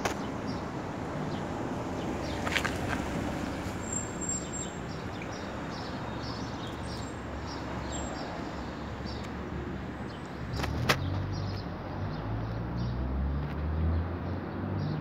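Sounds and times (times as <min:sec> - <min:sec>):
small birds chirping: 0:03.8 - 0:12.9.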